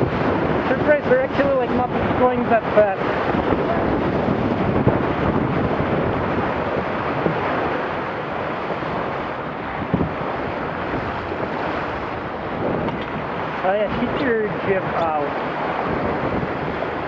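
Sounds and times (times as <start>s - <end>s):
water rushing along boat hull: 0.0s - 17.0s
wind buffeting microphone: 0.0s - 17.0s.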